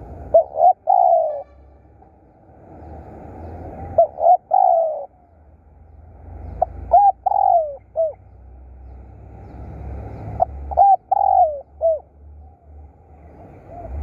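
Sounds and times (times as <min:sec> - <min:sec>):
dove cooing: 0:00.0 - 0:01.5, 0:03.7 - 0:05.4, 0:06.4 - 0:08.3, 0:10.2 - 0:14.0.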